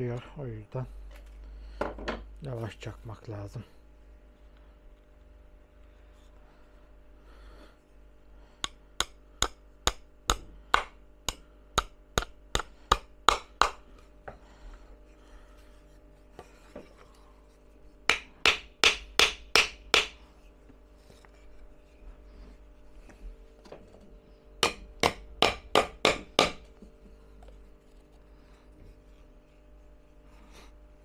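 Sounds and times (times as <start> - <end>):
hammer tapping nails into wood: 8.6 - 13.9, 18.1 - 20.2, 24.6 - 26.7.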